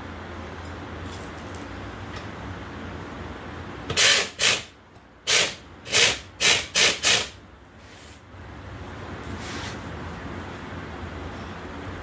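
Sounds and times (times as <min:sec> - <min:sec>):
air wrench whirring: 0:03.9 - 0:07.4.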